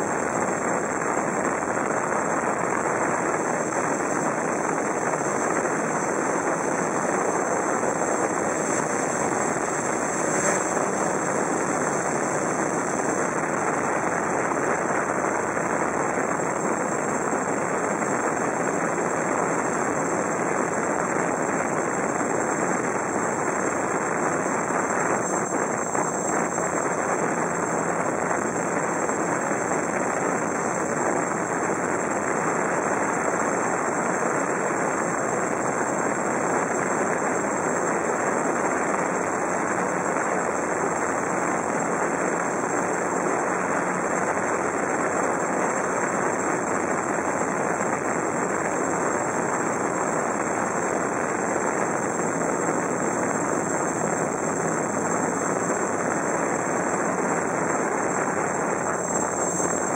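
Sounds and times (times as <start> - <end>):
quadcopter motors and propellers: 0.0 - 59.9
wind on microphone: 0.0 - 59.9.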